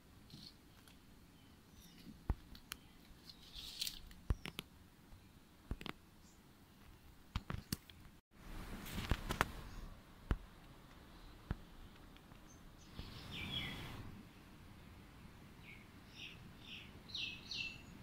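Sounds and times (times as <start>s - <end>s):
bird chirp: 0.4s - 7.1s, 11.1s - 18.0s.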